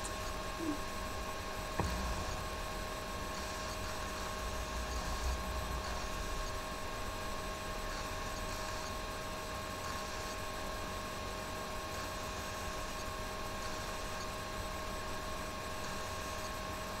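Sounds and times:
constant whining tones: 0:00.0 - 0:09.1
electrical hiss and hum: 0:00.0 - 0:17.0.

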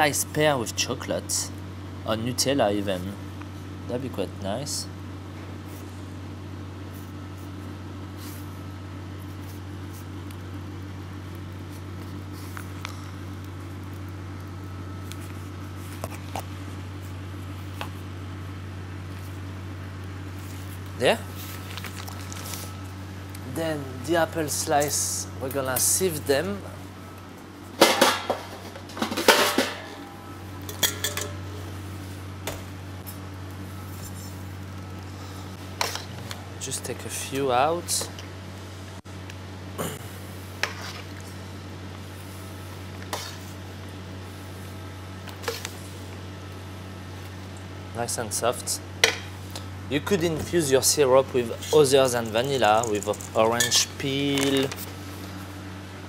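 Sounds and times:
kitchen machinery hum: 0:00.0 - 0:56.0
metal bowls clattering on steel: 0:27.8 - 0:31.4.

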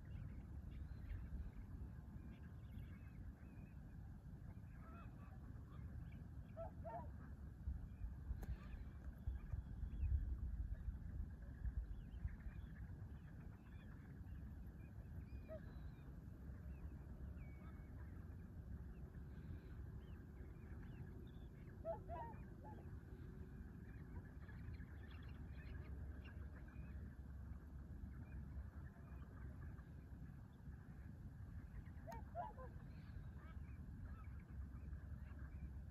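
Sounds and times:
low steady rumble: 0:00.0 - 0:35.9
faint bird chirps: 0:11.7 - 0:27.0.

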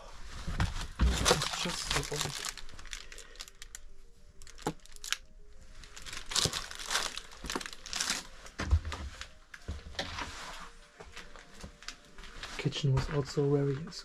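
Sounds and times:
footsteps crunching over debris: 0:00.4 - 0:03.4, 0:05.8 - 0:09.8
clothing rustling: 0:05.6 - 0:14.0.

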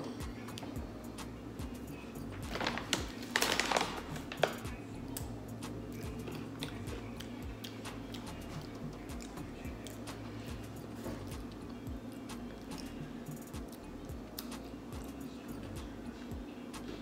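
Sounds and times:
quiet background music: 0:00.0 - 0:17.0
pretzel crunching: 0:02.5 - 0:05.3.

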